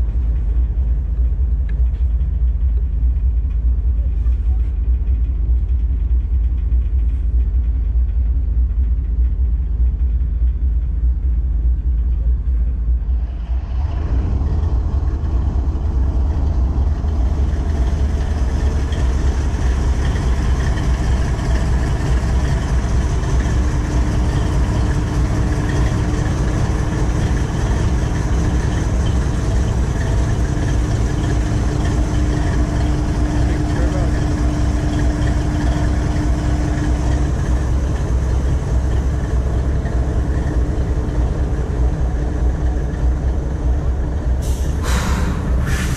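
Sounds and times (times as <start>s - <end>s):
locomotive engine idling: 0.0s - 45.9s
steady hum: 0.0s - 45.9s.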